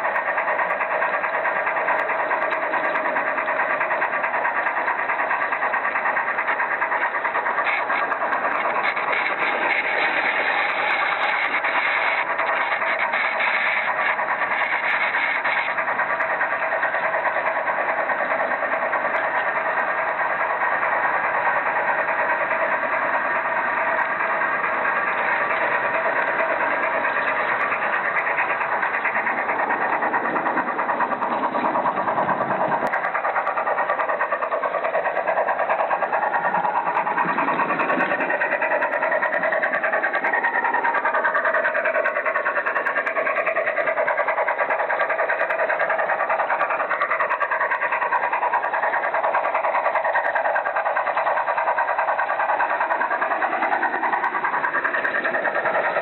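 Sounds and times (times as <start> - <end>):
model train motor whine: 0.0 - 56.0
wheel and rail noise: 0.0 - 56.0
low rumble: 23.4 - 41.2.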